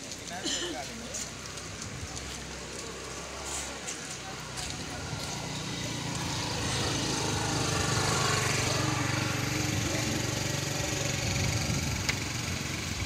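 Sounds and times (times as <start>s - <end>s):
small engine running: 4.4s - 13.0s.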